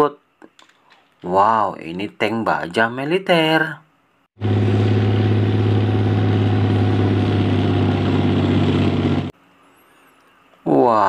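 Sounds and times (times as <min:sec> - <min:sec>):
tank engine droning: 0:04.4 - 0:09.3.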